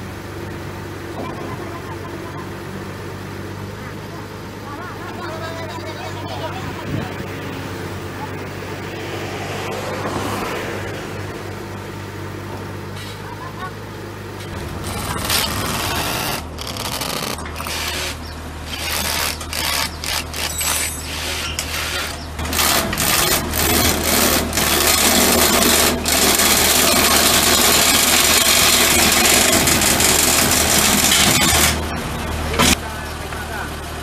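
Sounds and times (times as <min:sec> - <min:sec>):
hammer drill boring into concrete: 0:14.8 - 0:31.8.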